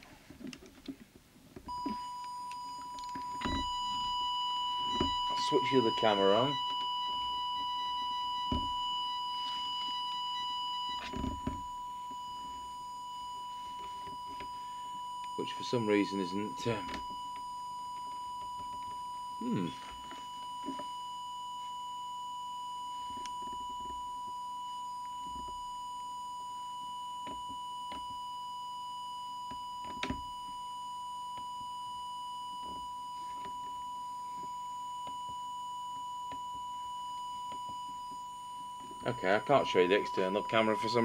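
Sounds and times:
steady audio test tone: 1.6 - 41.0.

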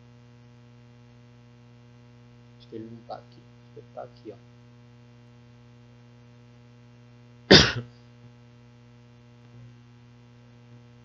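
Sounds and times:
electrical mains hum: 0.0 - 11.0
person coughing: 7.5 - 8.0.

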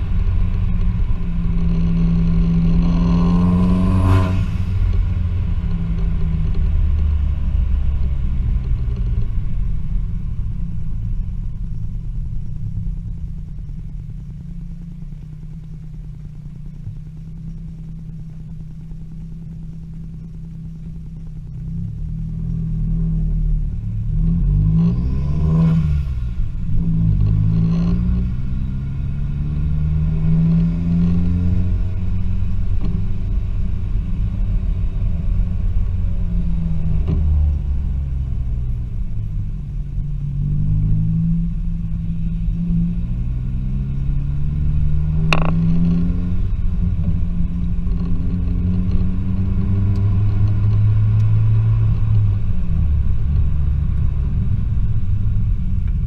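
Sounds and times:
car engine accelerating: 0.0 - 56.0
exhaust crack: 30.1 - 56.0.

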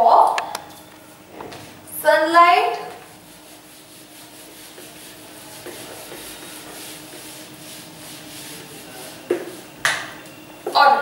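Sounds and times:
eraser wiping whiteboard: 2.7 - 9.8.

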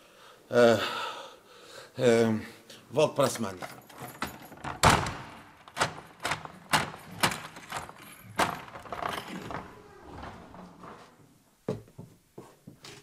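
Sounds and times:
metal door latch clicks: 3.9 - 9.7.

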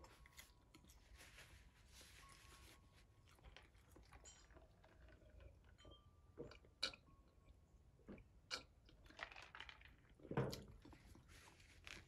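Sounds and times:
faint chewing: 0.0 - 1.6, 2.2 - 5.5.

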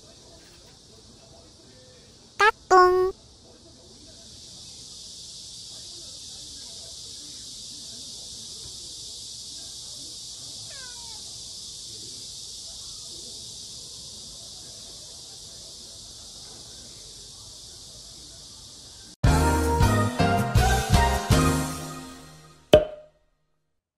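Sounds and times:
high-pitched hiss: 4.2 - 19.2
cat meowing: 10.7 - 11.2.

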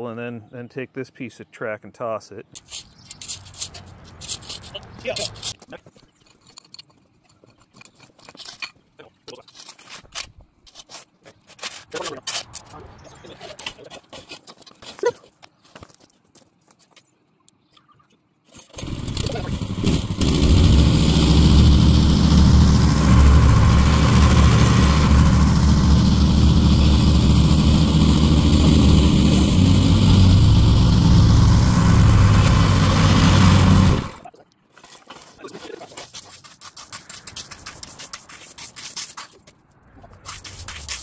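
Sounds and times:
scraping and scratching: 2.6 - 17.1, 18.5 - 41.0
engine droning: 18.8 - 34.2.

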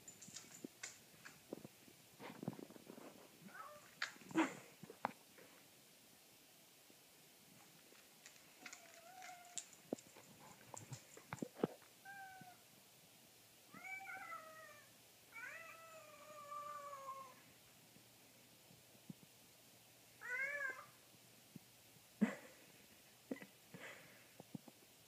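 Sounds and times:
cat meowing: 12.0 - 12.6, 13.7 - 17.4, 20.2 - 21.0.

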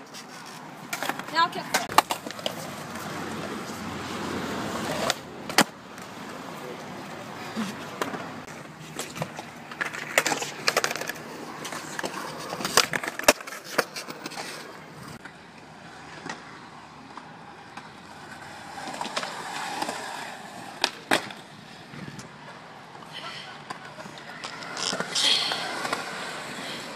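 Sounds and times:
skateboard clacking on concrete: 0.0 - 3.8, 4.8 - 6.4, 7.0 - 15.4, 17.2 - 22.6, 23.5 - 26.9
skateboard wheels rolling: 0.0 - 26.9.

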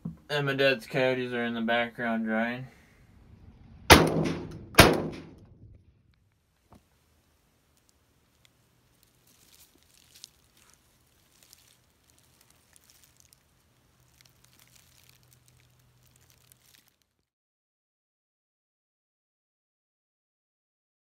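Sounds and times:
dry leaves crackling underfoot: 7.7 - 17.3
twig snapping: 7.8 - 17.2.

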